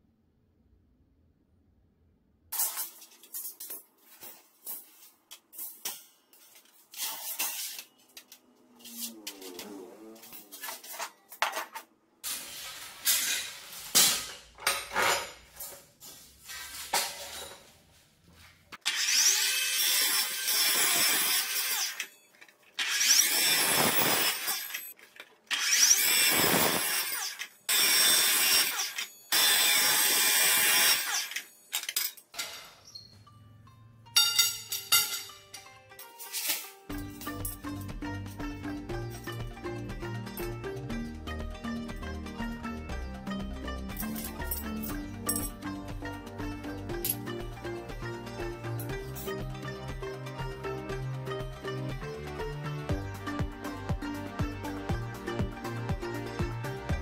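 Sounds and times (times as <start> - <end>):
metal grates clanking: 10.8 - 15.9, 34.1 - 37.9
metal cut-off saw cutting: 18.8 - 24.9, 25.5 - 31.6.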